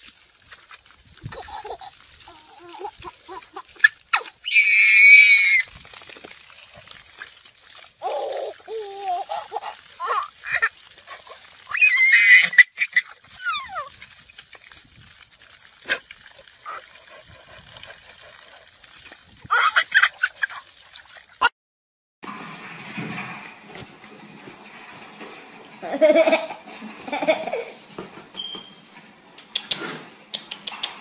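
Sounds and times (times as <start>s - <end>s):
baby giggling and babbling: 1.3s - 4.3s, 8.0s - 10.7s
baby squealing: 1.3s - 5.7s, 8.0s - 10.7s, 11.7s - 13.9s, 19.5s - 20.6s.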